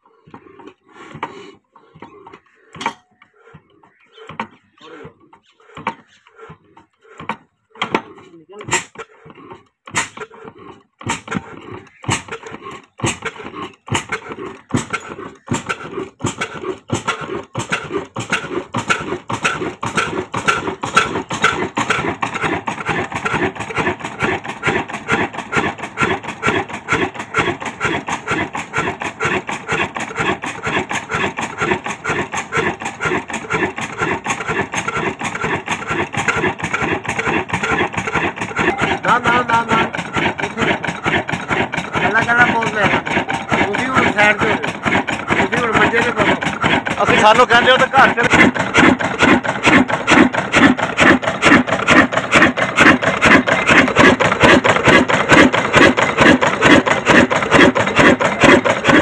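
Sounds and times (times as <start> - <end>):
stationary engine exhaust beats: 0.0 - 59.0.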